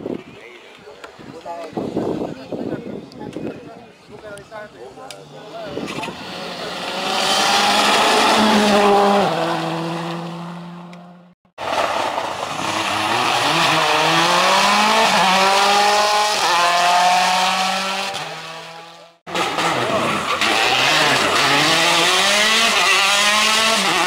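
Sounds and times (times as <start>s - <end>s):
rally car accelerating hard: 5.7s - 24.0s
rally car passing at speed: 6.1s - 24.0s.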